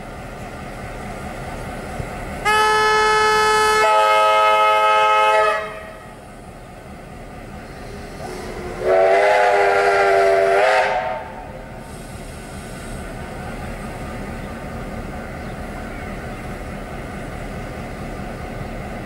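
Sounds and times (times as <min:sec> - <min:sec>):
steam locomotive whistle: 0:02.4 - 0:06.0, 0:08.1 - 0:11.6.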